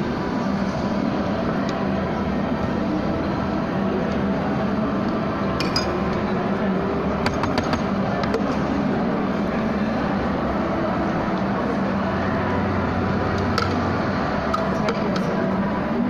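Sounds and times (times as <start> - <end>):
steady background hum: 0.0 - 16.0
utensils clinking on steel bowl: 5.6 - 6.0.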